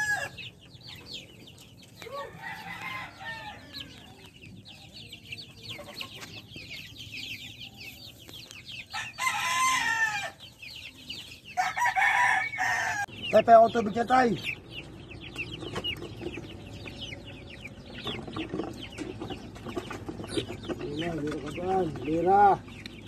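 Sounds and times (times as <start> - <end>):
rooster crowing: 0.0 - 0.4, 2.1 - 4.1, 8.9 - 10.4, 11.6 - 13.1
chicks peeping: 0.0 - 23.0.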